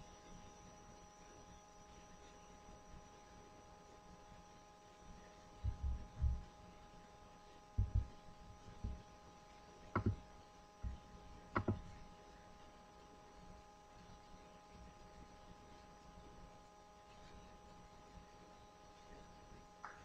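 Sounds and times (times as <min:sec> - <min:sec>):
faint electrical whine: 0:00.0 - 0:20.0
microphone handling thumps: 0:05.6 - 0:06.5, 0:07.8 - 0:08.2, 0:10.0 - 0:10.2.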